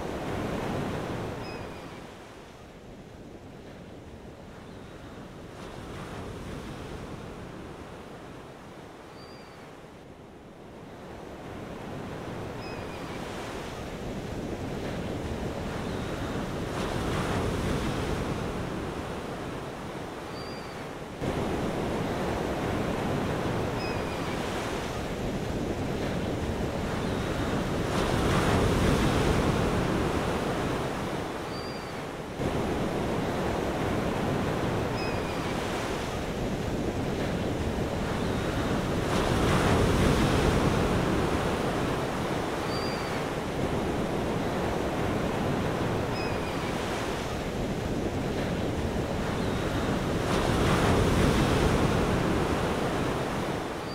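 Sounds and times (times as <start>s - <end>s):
ocean waves washing in: 0.0s - 2.9s, 20.9s - 53.9s.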